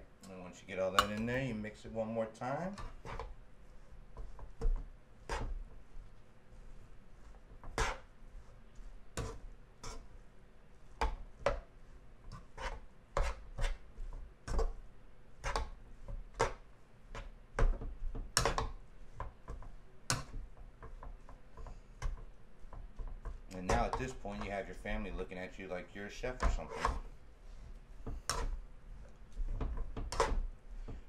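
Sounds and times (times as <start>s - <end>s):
metal spoon scraping frying pan: 7.6s - 8.1s, 9.2s - 10.1s, 26.4s - 27.0s, 29.5s - 30.4s.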